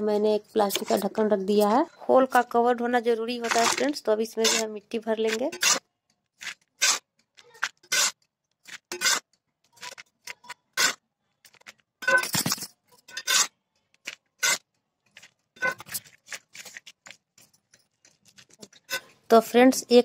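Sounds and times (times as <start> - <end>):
trowel scraping soil on concrete: 3.4 - 10.0, 10.7 - 11.0, 13.2 - 13.6, 14.4 - 14.6.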